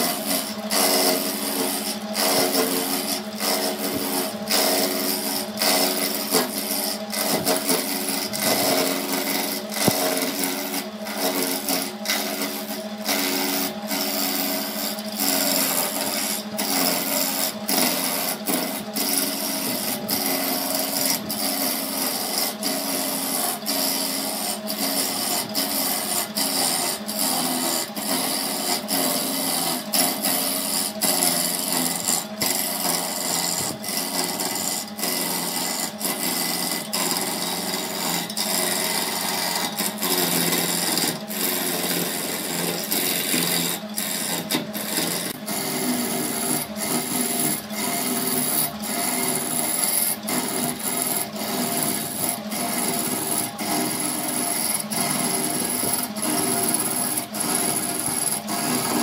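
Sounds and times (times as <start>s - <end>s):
lathe motor hum: 0.0s - 59.0s
tool scraping spinning wood: 0.0s - 59.0s.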